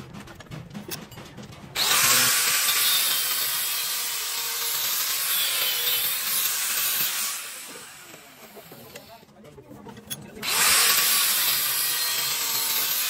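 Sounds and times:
angle grinder cutting steel: 0:01.8 - 0:09.2, 0:10.4 - 0:13.0.

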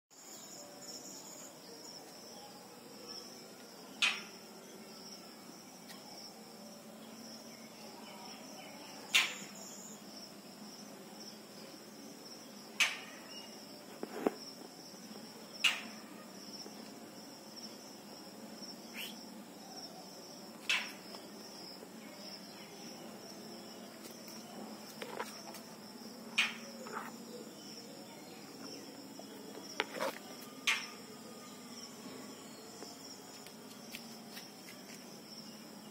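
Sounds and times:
high-pitched insect chorus: 0:00.2 - 0:35.9.

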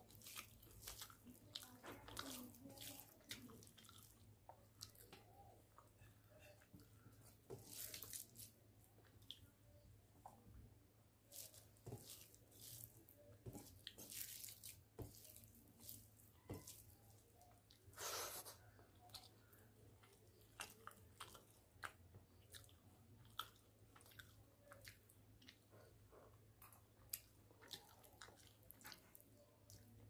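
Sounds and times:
wet chewing and lip-smacking: 0:00.0 - 0:06.0, 0:18.6 - 0:30.0
fingers squishing rice: 0:00.0 - 0:30.0.

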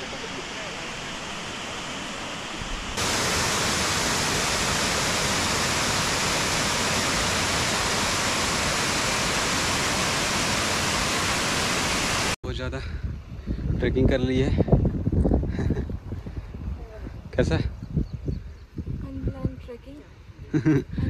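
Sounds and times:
waterfall rushing: 0:00.0 - 0:12.4.

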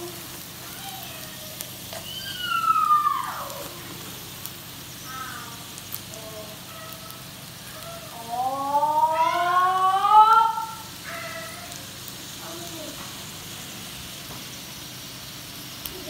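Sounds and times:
sausages sizzling in a frying pan: 0:00.0 - 0:16.0
loud falling pitched cry: 0:00.8 - 0:03.8, 0:06.6 - 0:11.9.

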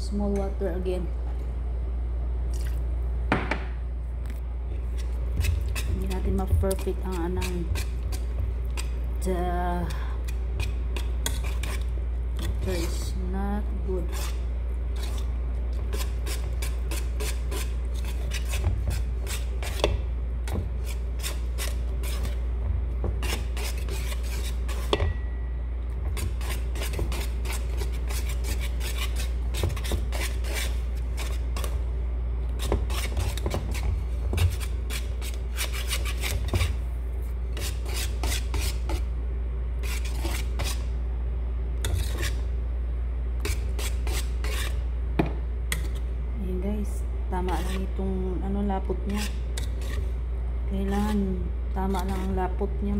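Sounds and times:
steady low hum: 0:00.0 - 0:52.9
utensil scraping mixing bowl: 0:04.7 - 0:25.2, 0:25.9 - 0:31.8, 0:32.5 - 0:36.8, 0:37.5 - 0:39.1, 0:39.8 - 0:40.9, 0:41.8 - 0:42.5, 0:43.4 - 0:44.8, 0:47.4 - 0:52.9.

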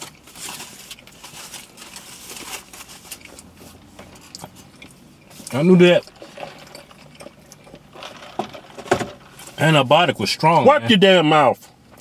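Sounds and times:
wrapper crinkling: 0:00.0 - 0:04.4.

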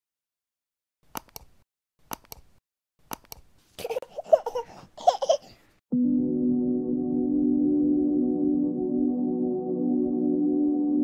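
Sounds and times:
mouse double-clicks: 0:01.1 - 0:01.5, 0:02.1 - 0:02.5, 0:03.1 - 0:03.4
small child laughing: 0:03.8 - 0:05.6.

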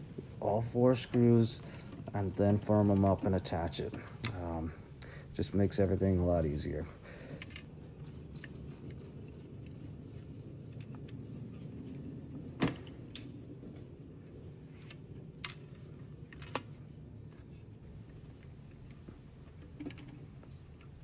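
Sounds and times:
steady low hum: 0:00.0 - 0:21.0
clicks and small knocks: 0:18.0 - 0:21.0.

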